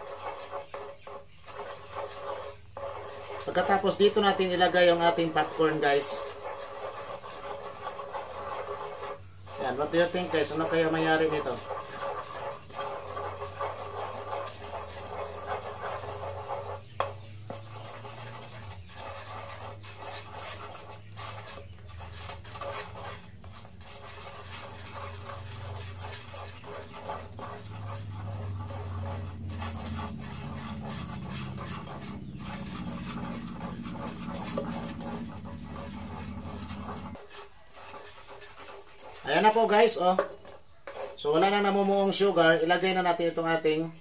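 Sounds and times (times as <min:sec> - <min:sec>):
wooden spatula scraping a pan: 0:00.0 - 0:44.0
steady low hum: 0:06.2 - 0:37.2.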